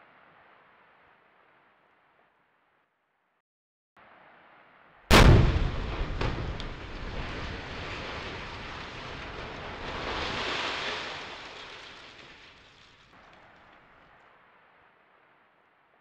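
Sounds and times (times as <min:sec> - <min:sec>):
demolition blasts: 0:05.1 - 0:13.6.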